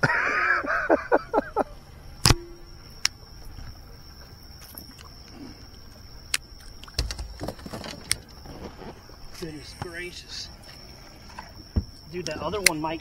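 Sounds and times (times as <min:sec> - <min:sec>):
steady high-pitched drone: 0:00.1 - 0:07.2, 0:08.2 - 0:13.0
gear and fish clicks and knocks: 0:06.3 - 0:08.4.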